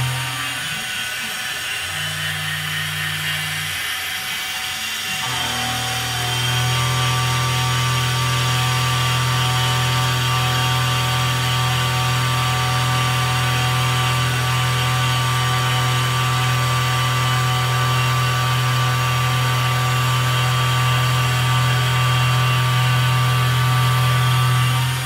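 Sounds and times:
milling machine humming: 0:00.0 - 0:25.0.

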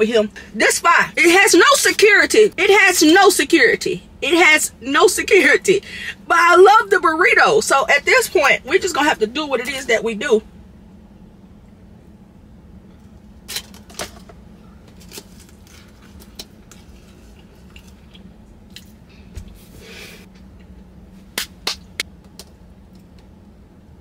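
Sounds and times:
faint steady hum: 0:00.0 - 0:24.0
person chewing food: 0:15.0 - 0:19.1.

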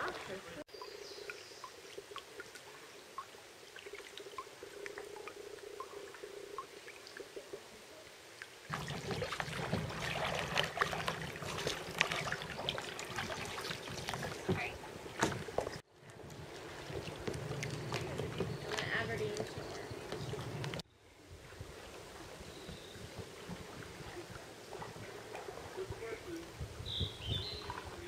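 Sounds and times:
water dripping off paddles: 0:00.0 - 0:20.8
paddle strokes splashing: 0:08.3 - 0:20.8, 0:21.6 - 0:28.0
water lapping against plastic hull: 0:08.7 - 0:20.8, 0:21.6 - 0:28.0.

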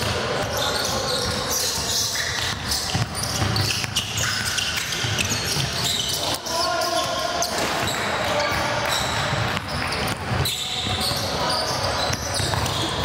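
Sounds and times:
basketball bouncing on court: 0:00.0 - 0:06.2, 0:06.9 - 0:13.0
chatter of voices: 0:04.2 - 0:13.0.

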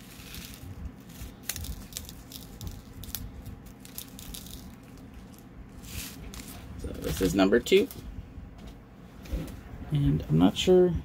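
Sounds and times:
light clicks and rattles of beads: 0:00.0 - 0:08.0
low steady hum: 0:00.0 - 0:11.0.

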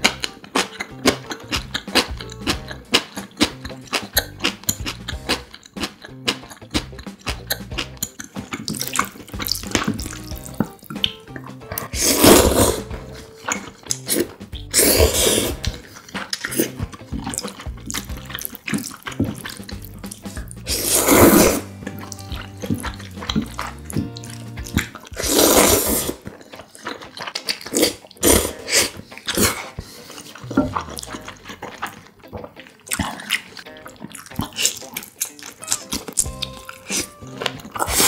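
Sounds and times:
wet chewing and smacking: 0:00.0 - 0:38.0
noodle slurping: 0:11.7 - 0:38.0.

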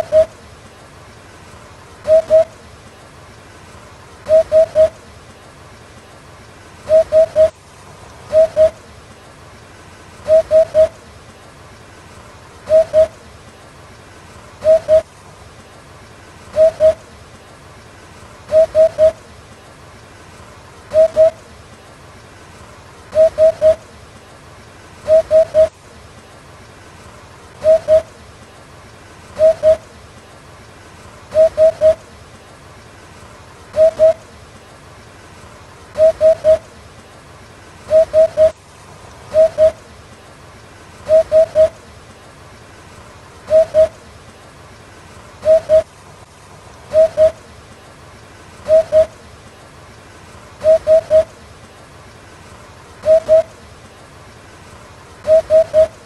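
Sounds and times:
hoopoe hooting call: 0:00.0 - 0:00.4, 0:02.0 - 0:02.6, 0:04.3 - 0:05.0, 0:06.9 - 0:07.6, 0:08.3 - 0:08.8, 0:10.2 - 0:11.0, 0:12.7 - 0:13.2, 0:14.6 - 0:15.1, 0:16.5 - 0:17.1, 0:18.5 - 0:19.2, 0:20.9 - 0:21.4, 0:23.1 - 0:23.8, 0:25.0 - 0:25.8, 0:27.6 - 0:28.2, 0:29.4 - 0:29.9, 0:31.3 - 0:32.0, 0:33.7 - 0:34.2, 0:36.0 - 0:36.7, 0:37.9 - 0:38.6, 0:39.3 - 0:39.9, 0:41.0 - 0:41.9, 0:43.5 - 0:44.0, 0:45.4 - 0:45.9, 0:46.9 - 0:47.4, 0:48.6 - 0:49.2, 0:50.6 - 0:51.4, 0:53.0 - 0:53.7, 0:55.2 - 0:56.0.

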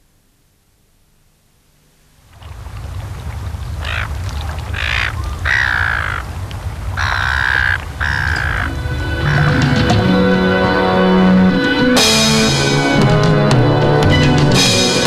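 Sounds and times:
loud shorebird calls: 0:03.8 - 0:09.7.

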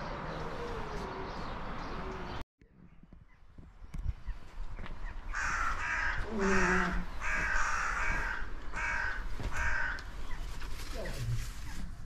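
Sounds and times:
crow cawing: 0:05.3 - 0:10.1.

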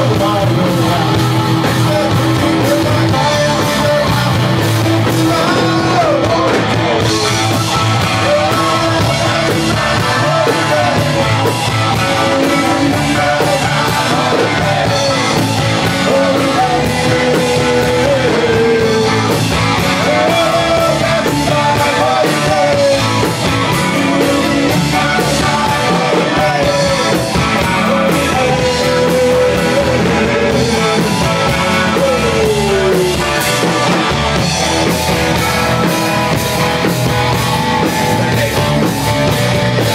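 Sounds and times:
bending lead melody: 0:00.0 - 0:39.9
live rock band playing: 0:00.0 - 0:39.9.

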